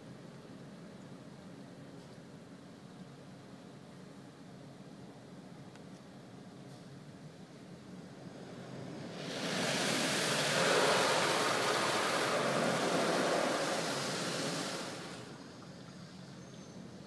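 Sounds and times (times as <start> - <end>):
car wash rushing noise: 7.7 - 15.7.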